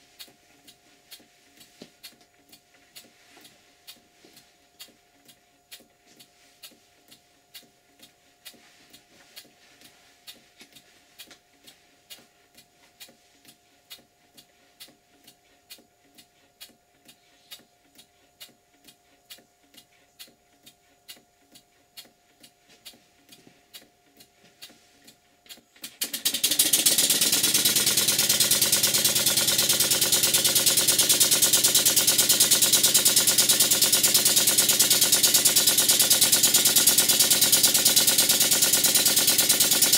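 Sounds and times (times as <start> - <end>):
model steam engine beats: 20.2 - 39.9.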